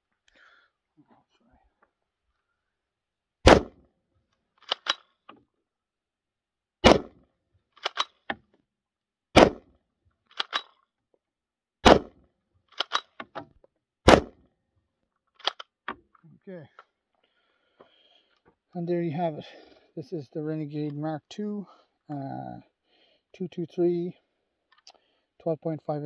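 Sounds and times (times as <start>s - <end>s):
rifle shots: 3.5s - 3.8s, 6.8s - 7.2s, 9.4s - 9.6s, 11.8s - 12.2s, 14.1s - 14.4s
metallic bolt clicks: 4.6s - 5.4s, 7.8s - 8.4s, 10.3s - 10.8s, 12.7s - 13.5s, 15.4s - 16.0s.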